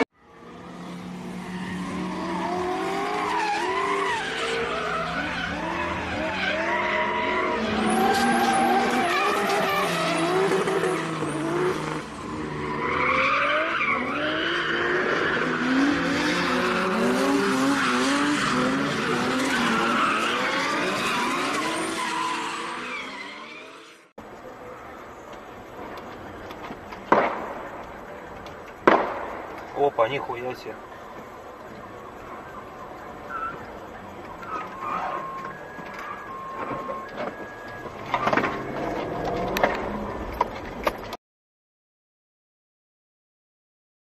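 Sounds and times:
tyres squealing and skidding: 0.0 - 27.2, 29.6 - 41.1
car engines revving: 0.0 - 41.1.

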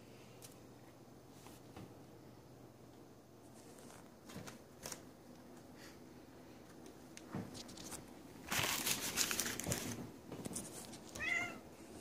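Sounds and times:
bubble wrap crinkling: 7.5 - 11.2.

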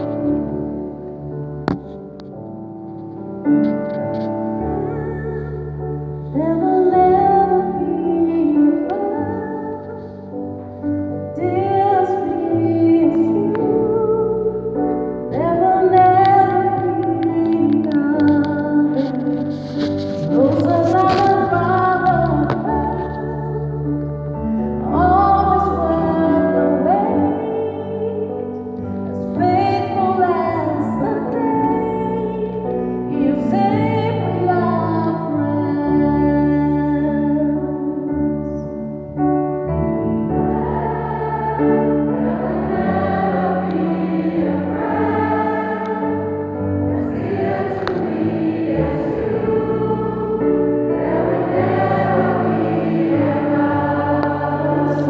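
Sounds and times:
woman singing gospel song: 15.4 - 23.6.

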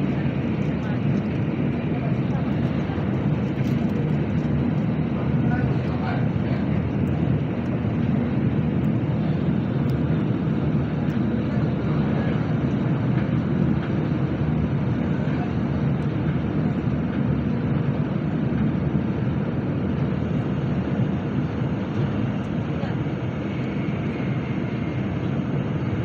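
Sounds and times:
train rumbling at speed: 0.0 - 26.0.

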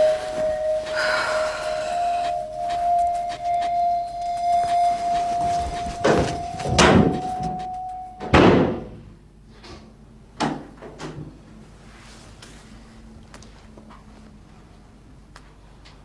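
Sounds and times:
door opening and shutting: 5.7 - 8.9.

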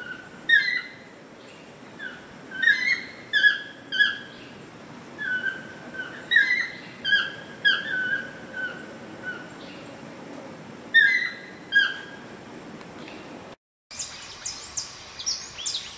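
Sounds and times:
toucan calling: 0.0 - 1.1, 2.0 - 4.6, 5.2 - 9.7, 10.9 - 12.3.

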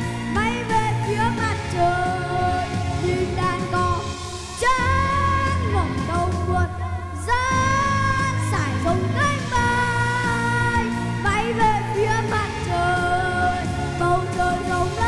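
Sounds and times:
boy singing into microphone: 0.0 - 15.0
pop instrumental accompaniment: 0.0 - 15.0.

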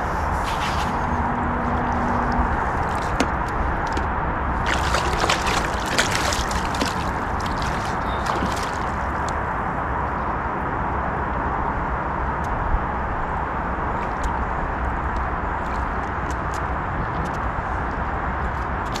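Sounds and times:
water splashing and sloshing: 0.3 - 9.7, 18.5 - 19.0
steady water rush: 2.0 - 9.6.

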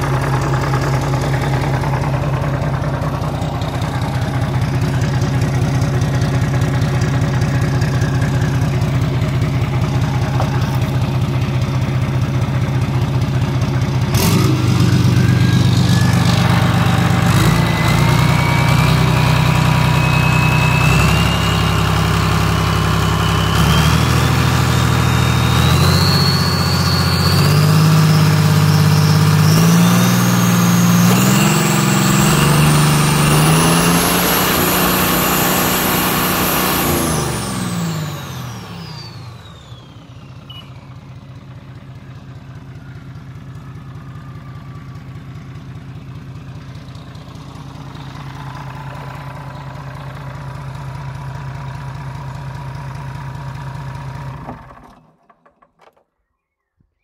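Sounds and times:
diesel engine revving: 0.0 - 55.0
whine rising in pitch: 14.1 - 40.6.

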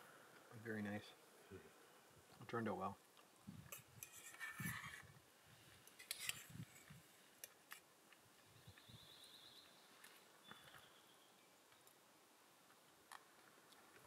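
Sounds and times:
spoon scraping a metal pot: 4.0 - 5.1.

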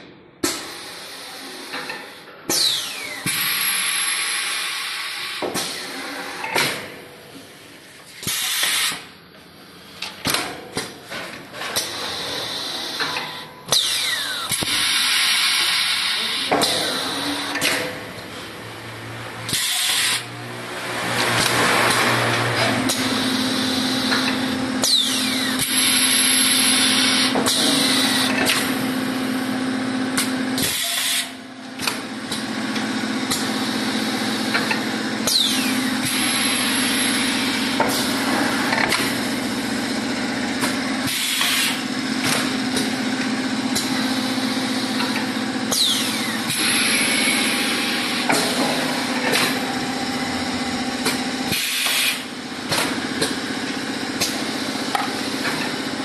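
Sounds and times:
machine motor hum: 9.0 - 56.0
press clanking and knocking: 16.4 - 18.6, 37.0 - 56.0.

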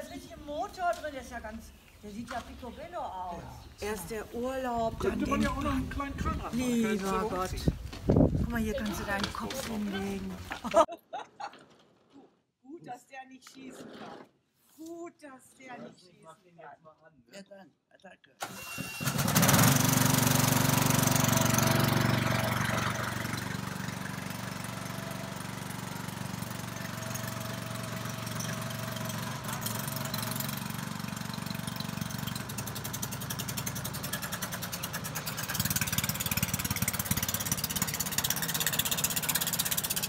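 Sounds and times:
small petrol engine running: 18.4 - 40.0.

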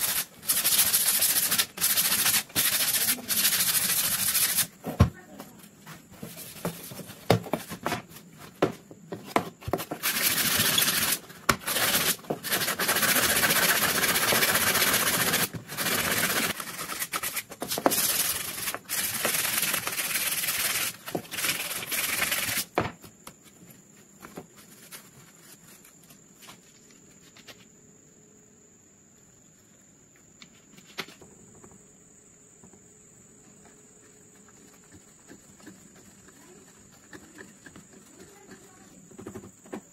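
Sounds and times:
hand sanding strokes: 0.0 - 4.8, 9.7 - 22.8, 34.0 - 39.0.

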